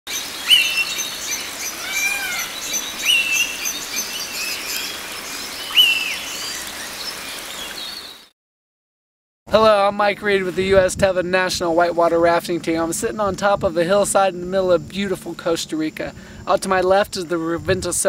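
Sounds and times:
short high bird chirps: 0:00.1 - 0:06.6
loud rising bird call: 0:00.1 - 0:08.0
sliding bird calls: 0:00.4 - 0:06.4.

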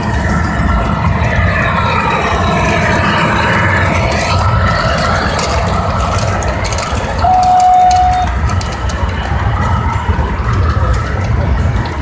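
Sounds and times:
clicking over rails: 0:00.0 - 0:12.0
model train rumbling on track: 0:00.0 - 0:12.0
steady high tone: 0:07.2 - 0:08.4.

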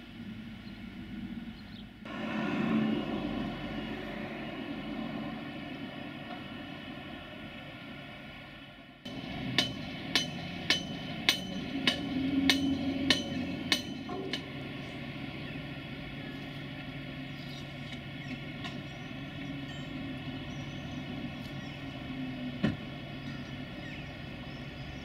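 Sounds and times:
machinery hum: 0:00.0 - 0:25.0
hammer blows: 0:09.1 - 0:15.1.

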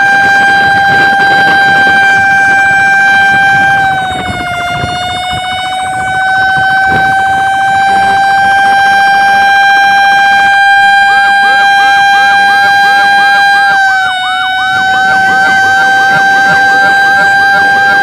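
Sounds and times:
fire truck warning tone: 0:00.0 - 0:18.0.

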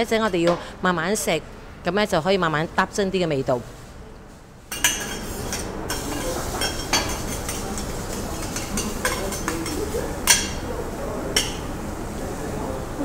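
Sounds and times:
metal spatulas clinking and scraping: 0:04.7 - 0:10.6.

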